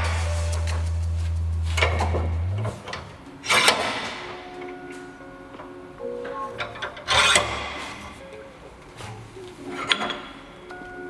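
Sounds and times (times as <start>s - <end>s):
bench vise being tightened: 6.6s - 8.1s.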